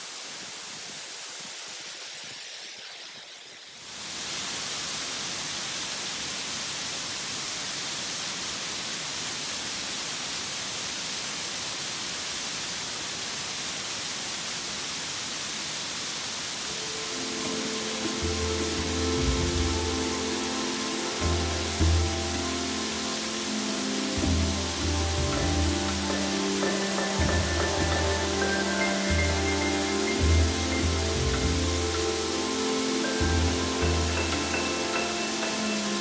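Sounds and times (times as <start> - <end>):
waterfall rushing hiss: 0.0 - 36.0
music: 16.8 - 36.0.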